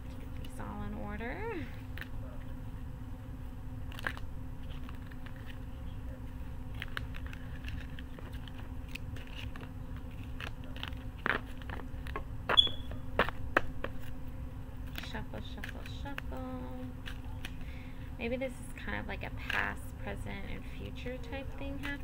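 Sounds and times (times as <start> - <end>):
steady low hum: 0.0 - 22.0
cards tapping and rustling: 6.7 - 14.2.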